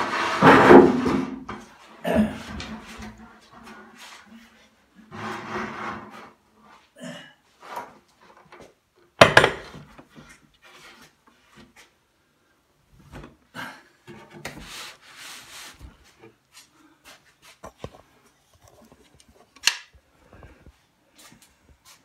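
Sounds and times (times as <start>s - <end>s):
wood scraping on table: 0.0s - 1.6s, 5.1s - 6.4s.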